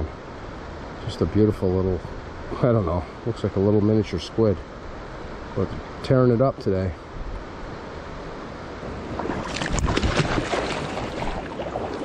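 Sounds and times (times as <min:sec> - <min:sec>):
river water running over rocks: 0:00.0 - 0:12.0
wind on microphone: 0:08.9 - 0:12.0.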